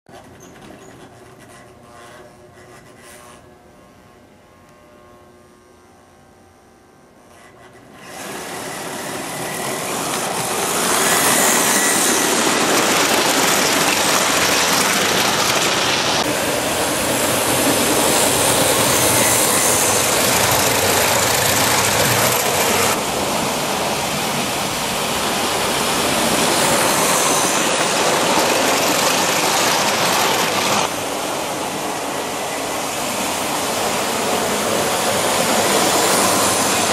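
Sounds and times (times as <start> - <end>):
model train rattling on track: 7.6 - 36.9.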